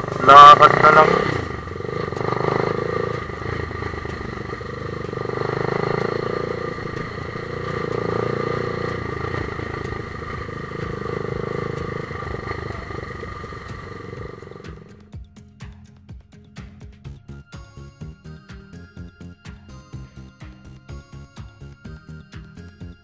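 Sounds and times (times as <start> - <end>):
vehicle engine droning: 0.0 - 15.0.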